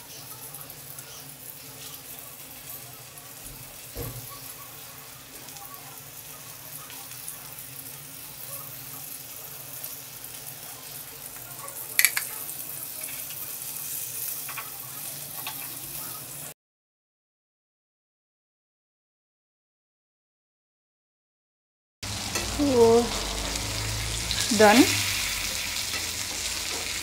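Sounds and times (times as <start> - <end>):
fish sizzling in a pan: 0.0 - 16.5, 22.0 - 27.0.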